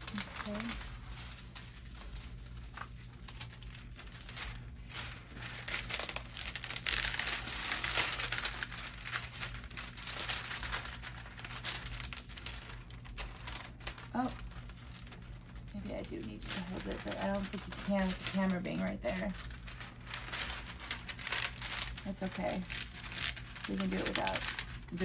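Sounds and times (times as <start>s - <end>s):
plastic film crinkling: 0.0s - 25.0s.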